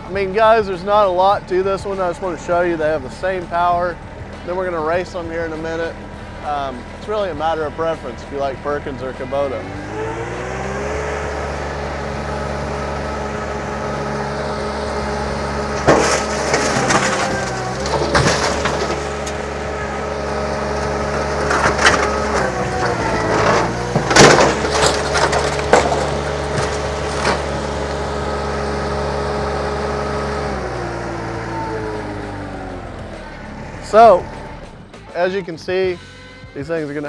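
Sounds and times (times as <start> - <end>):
diesel engine at high throttle: 0.0 - 36.6
metal crunching and cracking: 13.1 - 28.5.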